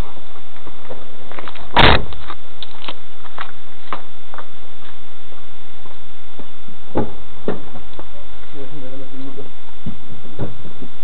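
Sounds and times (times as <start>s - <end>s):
heavy thump: 1.7s - 2.1s, 6.9s - 7.9s.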